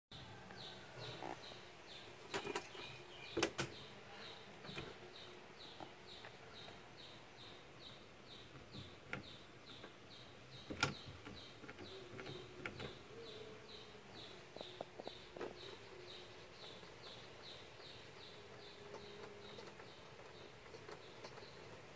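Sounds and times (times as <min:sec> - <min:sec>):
small bird chirping: 0:00.2 - 0:21.9.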